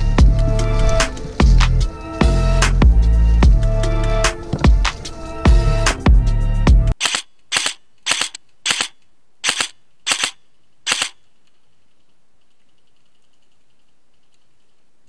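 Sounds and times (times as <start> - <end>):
background music: 0.0 - 7.0
airsoft rifle shots: 7.0 - 11.2.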